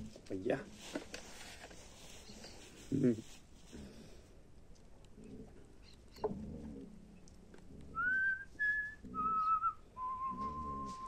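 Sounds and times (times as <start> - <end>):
person whistling a tune: 8.0 - 11.0.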